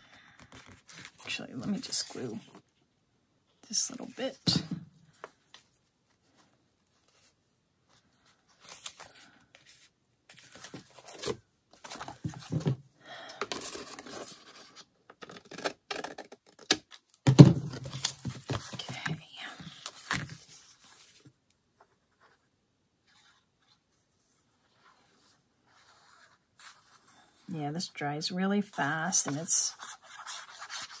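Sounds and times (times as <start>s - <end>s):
paper rustling and scraping: 5.6s - 12.7s, 28.7s - 31.0s.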